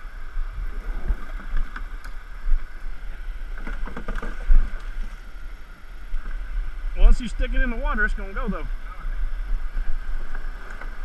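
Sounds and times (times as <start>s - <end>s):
canoe hull scraping on rock: 3.5s - 5.3s.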